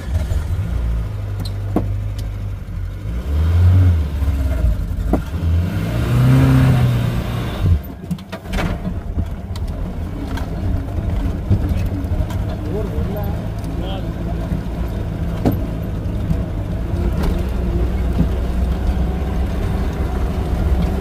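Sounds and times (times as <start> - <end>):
car engine running: 0.0 - 21.0
sharp knocks or rattles: 14.4 - 18.6.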